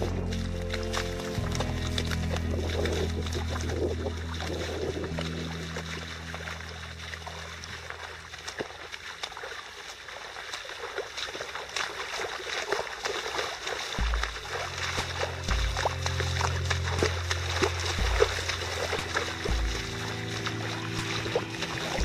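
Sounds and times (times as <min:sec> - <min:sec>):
low rumble: 0:00.0 - 0:09.2, 0:14.0 - 0:22.0
boots splashing in water: 0:00.0 - 0:22.0.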